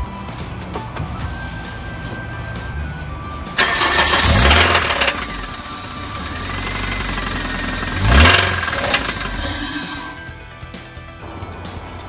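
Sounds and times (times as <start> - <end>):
engine ticking and clattering: 3.5 - 11.1.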